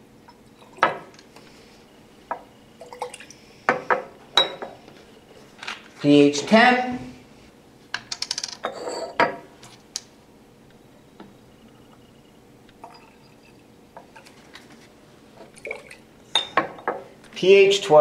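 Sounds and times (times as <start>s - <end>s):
glass flasks clinking: 0.3s - 1.1s, 2.3s - 4.8s, 8.6s - 9.4s, 12.8s - 14.4s, 15.4s - 17.0s
liquid pouring into glass flask: 2.8s - 3.4s, 15.4s - 16.1s.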